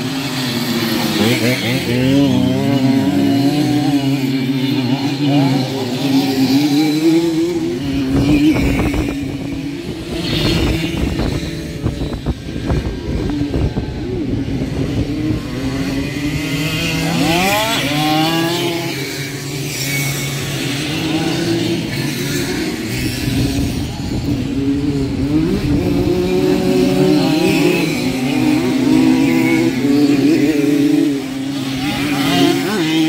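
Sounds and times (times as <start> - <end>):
two-stroke moped engines revving: 0.0 - 33.0.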